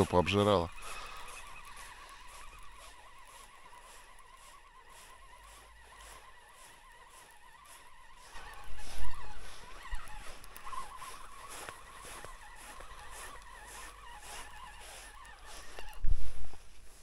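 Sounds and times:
fishing reel whining: 0.0s - 17.0s
wind buffeting microphone: 8.0s - 13.5s.

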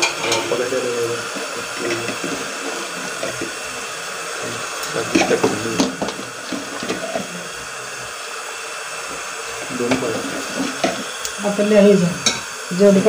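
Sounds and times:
meat sizzling in a pot: 0.0s - 13.0s
knocks and scrapes in pot: 1.2s - 3.8s, 4.4s - 7.4s, 9.1s - 11.1s.

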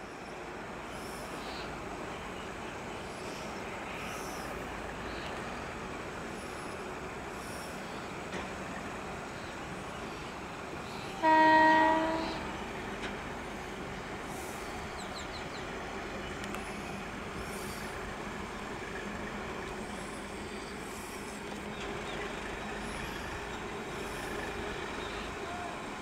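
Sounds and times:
freight train approaching: 0.0s - 26.0s
locomotive horn blast: 11.2s - 12.6s.

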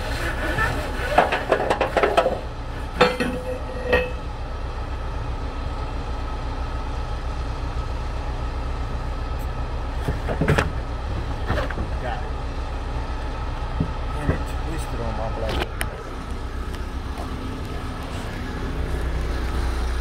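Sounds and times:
metal hardware clinking: 3.0s - 4.2s.

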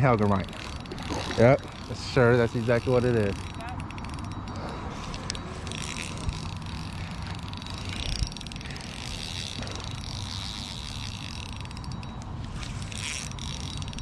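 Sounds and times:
fishing reel gears clicking: 0.0s - 14.0s.

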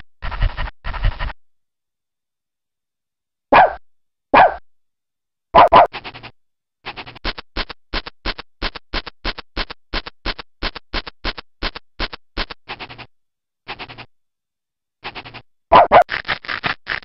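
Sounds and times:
scratchy digging scrapes: 0.2s - 1.3s, 5.7s - 6.3s, 6.9s - 13.1s, 13.7s - 14.1s, 15.0s - 17.0s.

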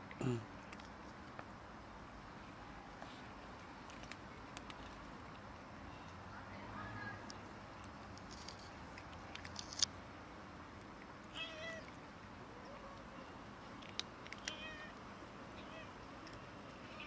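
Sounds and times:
cat meowing: 11.4s - 11.9s.

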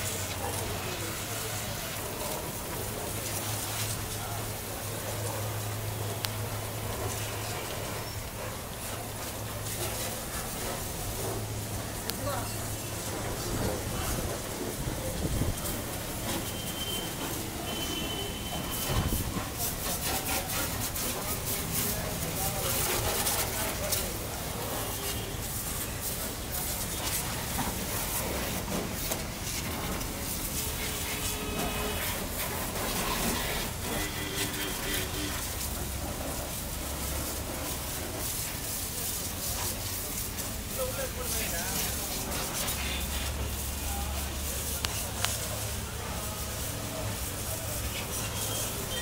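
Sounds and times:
pressure washer spray hissing: 0.0s - 49.0s
washing machinery drone: 0.0s - 49.0s
faint thin whistle: 16.4s - 19.2s.

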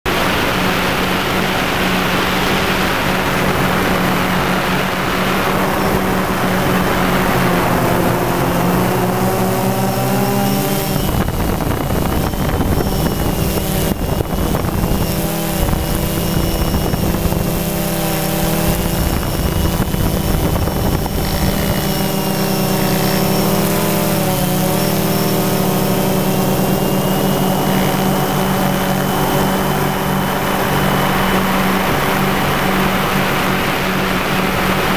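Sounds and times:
drone motors humming: 0.1s - 34.9s
high whine: 0.1s - 34.9s
wind on microphone: 0.1s - 34.9s.

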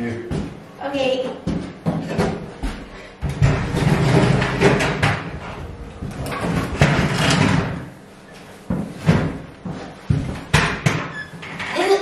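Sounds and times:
stool scraping on floor: 3.4s - 4.9s.

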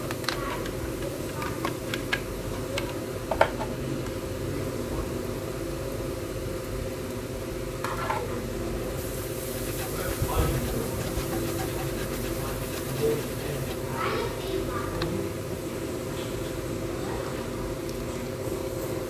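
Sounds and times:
garlic and onion sizzling in butter: 5.8s - 14.8s.

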